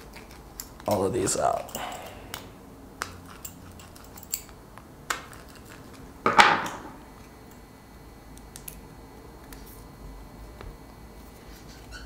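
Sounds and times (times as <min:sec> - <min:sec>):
cutters clicking: 0:00.0 - 0:05.8.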